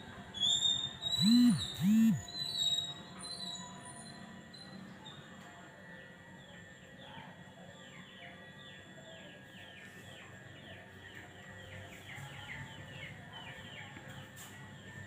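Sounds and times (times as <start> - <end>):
small birds chirping: 0.4 - 2.9.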